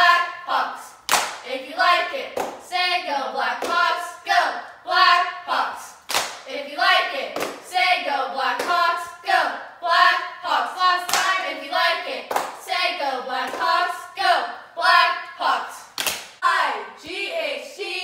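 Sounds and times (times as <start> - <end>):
cheerleaders chanting in unison: 0.0 - 18.0
sharp hand claps: 1.1 - 1.4, 6.1 - 6.4, 16.0 - 16.4.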